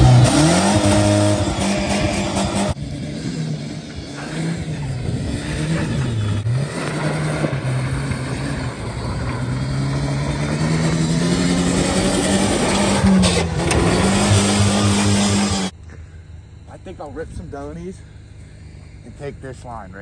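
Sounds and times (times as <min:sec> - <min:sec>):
pickup truck engine under throttle: 0:00.0 - 0:15.8.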